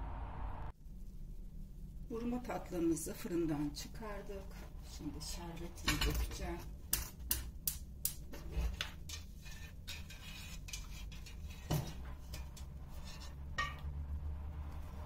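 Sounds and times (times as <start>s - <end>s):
metal pot and ladle clinking: 5.7s - 14.0s.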